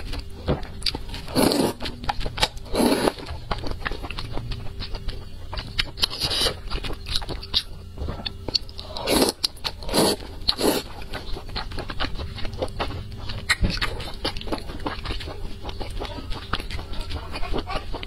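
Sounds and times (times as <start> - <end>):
chewing with smacking clicks: 0.0 - 18.0
noodles being slurped: 1.3 - 1.8, 8.9 - 11.0.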